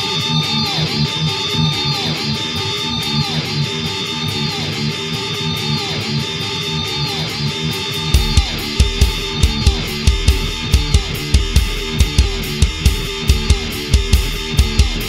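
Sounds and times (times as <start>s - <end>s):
heavy metal guitar riff: 0.0s - 15.0s
hard low kick drum hits: 8.2s - 15.0s.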